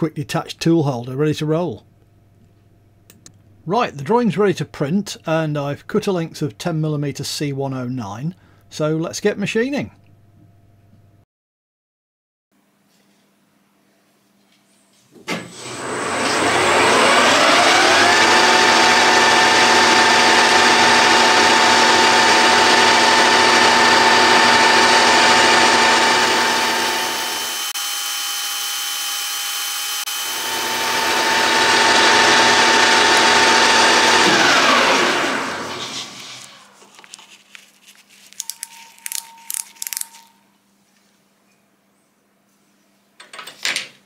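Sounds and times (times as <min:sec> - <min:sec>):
lathe gear whine: 0:15.6 - 0:36.5.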